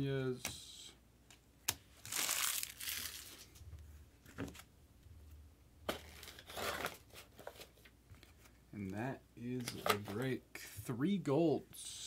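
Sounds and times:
trading cards rustling and sliding: 2.0 - 3.6, 5.9 - 8.6.

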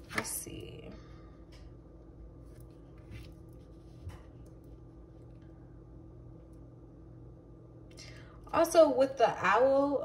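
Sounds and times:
faint steady hum: 0.0 - 10.0
soft brushing: 2.4 - 4.8
card rustling on a cloth mat: 2.5 - 4.2.

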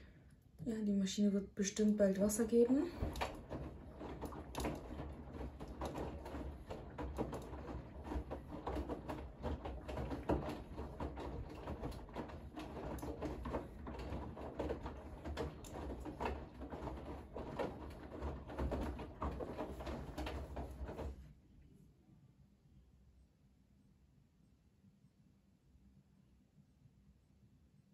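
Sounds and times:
washing machine rumble: 0.0 - 21.4
washing machine laundry tumbling: 0.6 - 21.3.

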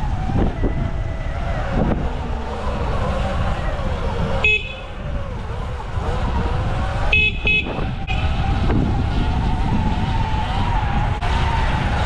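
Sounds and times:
wind rumble on microphone: 0.0 - 12.0
horn beeps: 4.4 - 5.0, 7.0 - 8.4.

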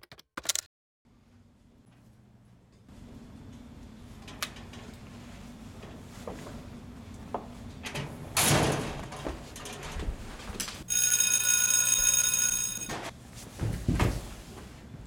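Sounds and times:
high ringing tone: 10.9 - 13.1.

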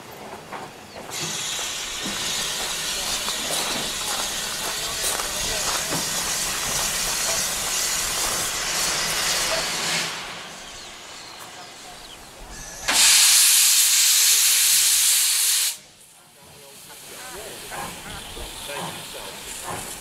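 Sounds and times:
steam locomotive hissing: 0.8 - 20.0
steam blowing from drain cocks: 1.1 - 11.1, 12.5 - 15.9.

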